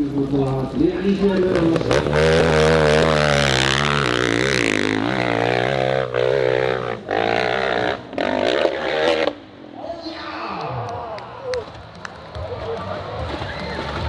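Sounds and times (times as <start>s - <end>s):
dirt bike engine revving: 1.1s - 9.5s.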